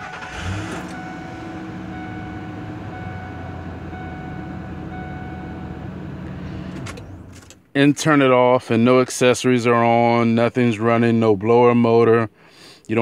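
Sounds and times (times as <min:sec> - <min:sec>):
car engine starting and idling: 0:00.0 - 0:07.7.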